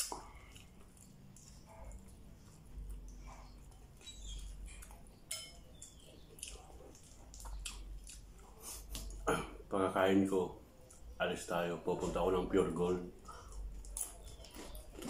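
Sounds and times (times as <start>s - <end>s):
fingers clicking and squishing food: 0.0s - 9.2s, 10.7s - 11.2s, 13.2s - 15.0s
chewing and wet mouth sounds: 0.0s - 9.3s, 10.7s - 11.2s, 13.1s - 15.0s.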